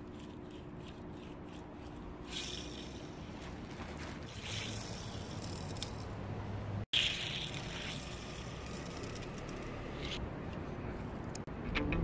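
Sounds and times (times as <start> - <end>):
low background hum: 0.0 - 12.0
toy car rolling on plastic track: 4.2 - 6.1, 7.0 - 10.2.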